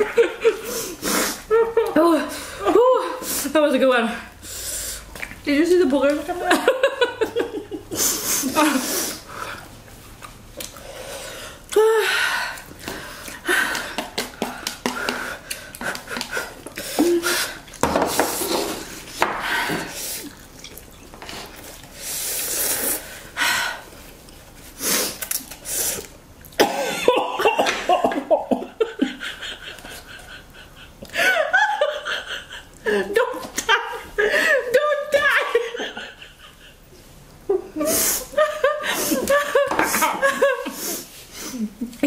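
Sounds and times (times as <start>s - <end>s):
hard breathing: 10.7s - 20.3s
people slurping noodles: 15.0s - 23.3s
people coughing: 26.6s - 28.7s.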